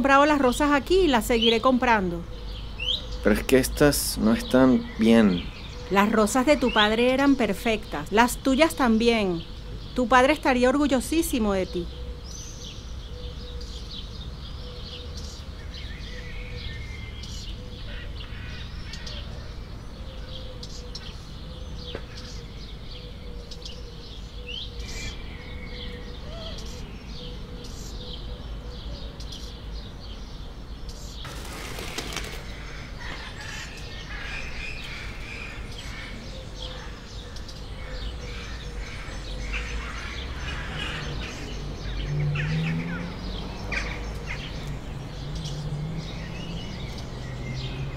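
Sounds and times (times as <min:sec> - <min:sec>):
birds chirping: 0:00.0 - 0:47.9.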